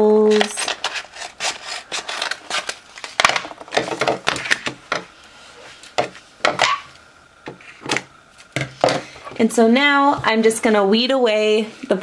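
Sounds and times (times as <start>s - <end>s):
scissors snipping plastic film: 0.3s - 4.8s.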